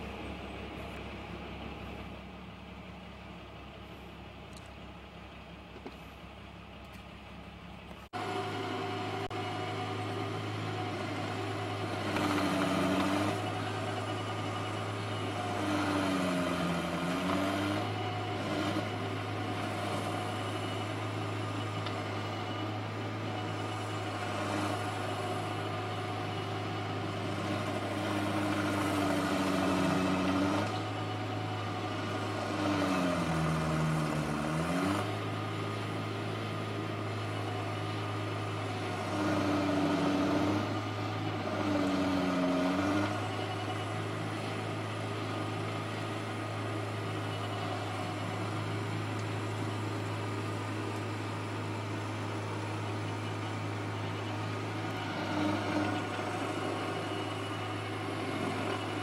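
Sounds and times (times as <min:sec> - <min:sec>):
stump grinder engine running: 0:00.0 - 0:59.0.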